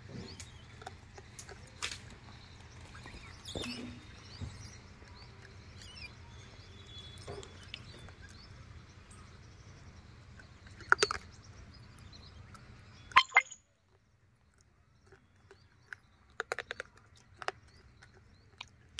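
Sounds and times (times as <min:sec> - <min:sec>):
faint bird chirps: 0:01.6 - 0:14.0.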